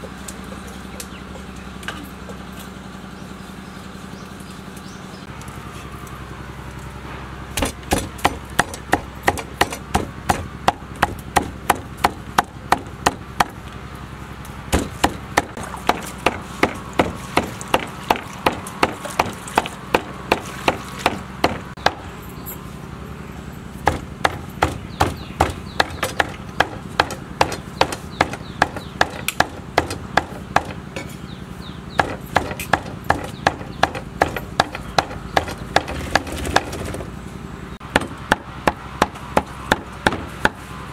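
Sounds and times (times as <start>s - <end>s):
cleaver chopping on wooden block: 7.6s - 13.6s, 14.7s - 22.0s, 23.8s - 30.8s, 32.0s - 36.8s.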